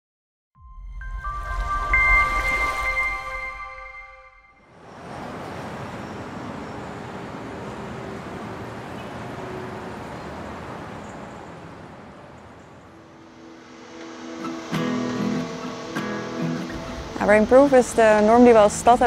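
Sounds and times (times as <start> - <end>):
city traffic hum: 4.5 - 19.0.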